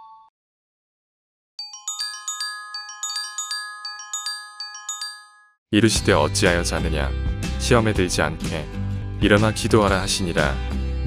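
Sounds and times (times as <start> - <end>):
bell-like jingle: 1.6 - 7.0.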